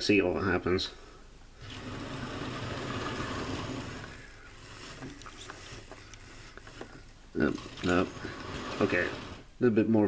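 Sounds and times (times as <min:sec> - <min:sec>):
model train motor whirring: 0:01.6 - 0:06.8, 0:07.4 - 0:09.5.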